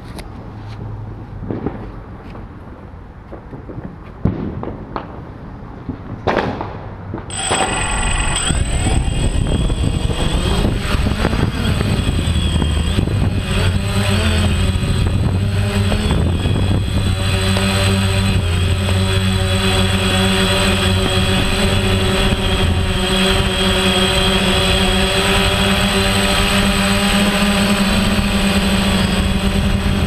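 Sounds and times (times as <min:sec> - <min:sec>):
drone propellers whining: 0:07.3 - 0:30.0.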